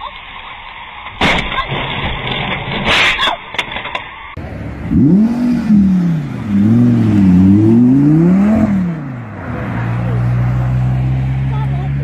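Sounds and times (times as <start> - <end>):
car engine revving hard: 4.4 - 11.6.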